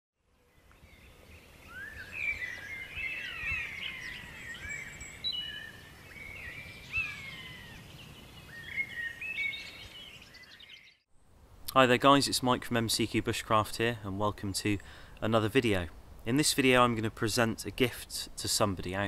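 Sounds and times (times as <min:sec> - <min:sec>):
birds singing and chirping: 0:00.4 - 0:11.0.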